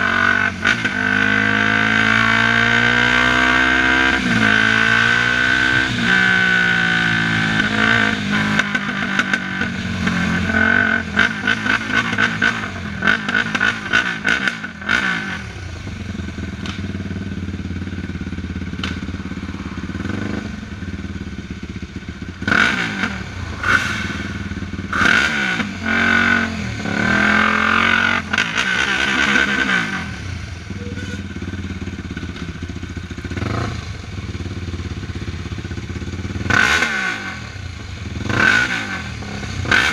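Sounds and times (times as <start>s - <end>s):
quad engine at low speed: 0.0s - 39.9s
engine clatter: 16.2s - 20.5s, 26.9s - 39.9s.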